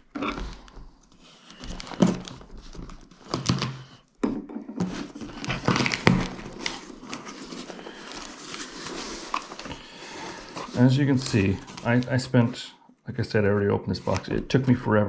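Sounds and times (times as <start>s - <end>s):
cardboard flaps rustling open: 0.0s - 4.0s, 4.8s - 12.4s
tape tearing: 4.9s - 12.2s.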